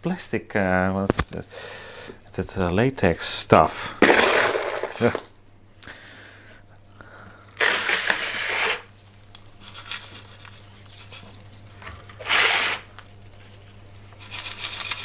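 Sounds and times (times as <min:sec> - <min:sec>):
stones rattling in metal scoop: 0:04.0 - 0:05.3.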